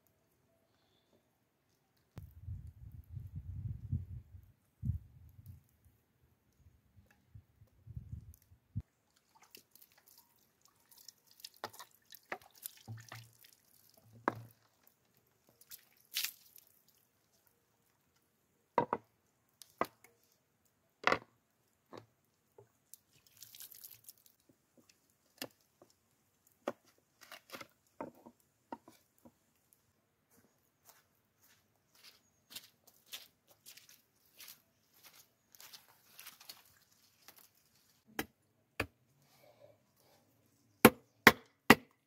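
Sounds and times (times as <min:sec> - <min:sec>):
water splashing and dripping: 0:08.8 - 0:17.4, 0:22.8 - 0:24.4.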